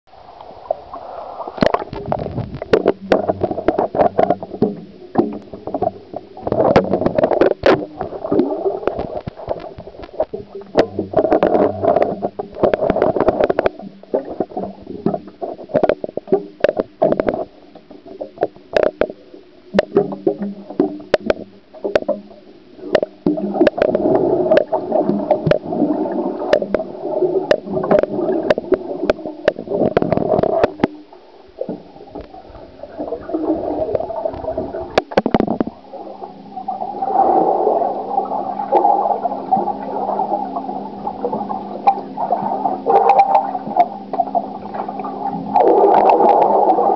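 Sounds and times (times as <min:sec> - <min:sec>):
water sloshing and bubbling underwater: 0:00.1 - 0:46.9
sharp clicks and knocks: 0:01.6 - 0:25.7, 0:26.5 - 0:32.4, 0:33.9 - 0:35.7.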